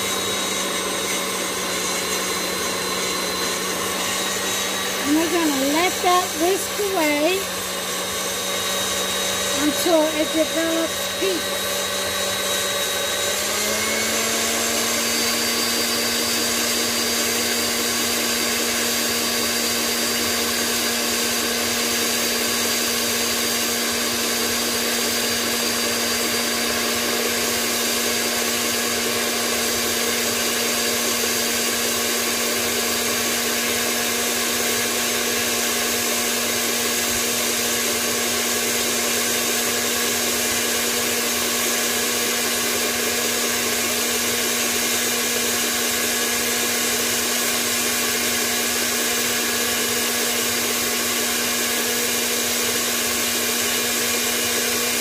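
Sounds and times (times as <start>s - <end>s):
stand mixer motor whine: 0.0s - 55.0s.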